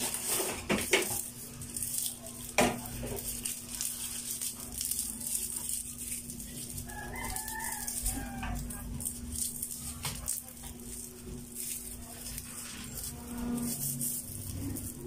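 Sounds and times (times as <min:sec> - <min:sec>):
rustling and handling: 0:00.0 - 0:15.0
stalks snapping: 0:00.8 - 0:12.8.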